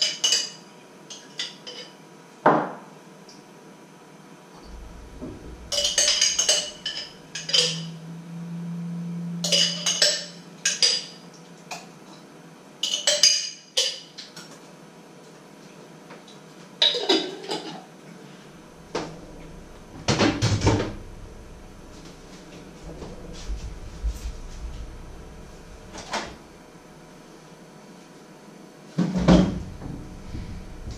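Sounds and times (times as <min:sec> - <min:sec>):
low steady hum: 0:04.6 - 0:13.2, 0:18.0 - 0:30.9.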